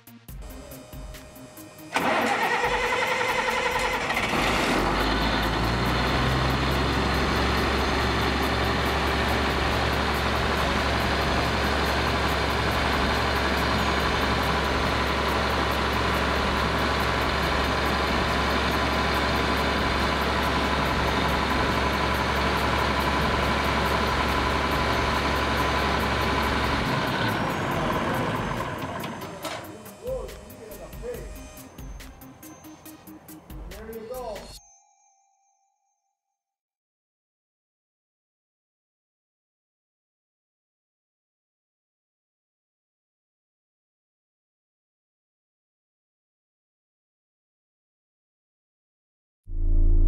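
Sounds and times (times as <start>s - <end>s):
diesel engine idling: 1.8s - 33.2s.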